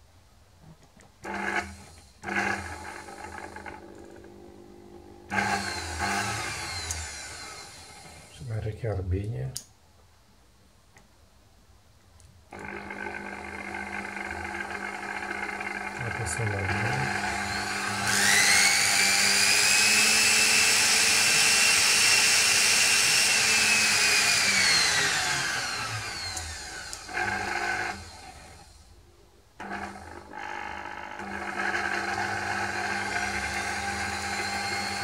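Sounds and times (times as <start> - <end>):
small electric motor whining: 5.3 - 8.3, 12.5 - 28.9, 29.6 - 35.0.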